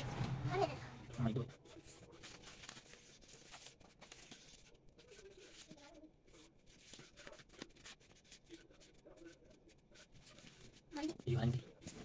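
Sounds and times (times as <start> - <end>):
paper rustling and crinkling: 1.6 - 12.0.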